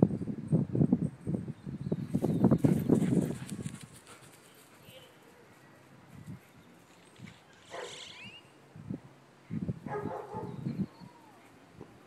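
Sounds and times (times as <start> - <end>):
puppy barking: 7.7 - 8.0, 9.9 - 10.6.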